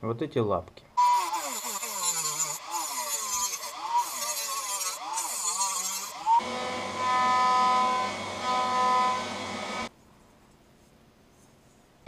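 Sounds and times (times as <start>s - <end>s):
rotary tool grinding metal: 1.0s - 9.9s
rotary tool whining: 1.0s - 9.9s.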